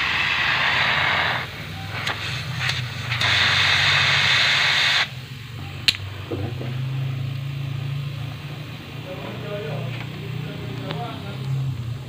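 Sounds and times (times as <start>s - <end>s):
air hissing from pipe: 0.0s - 9.2s
compressor low hum: 0.0s - 12.0s.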